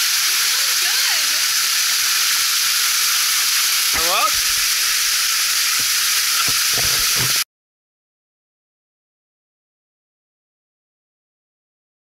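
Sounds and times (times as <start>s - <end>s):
waterfall splashing on rock: 0.0s - 7.4s.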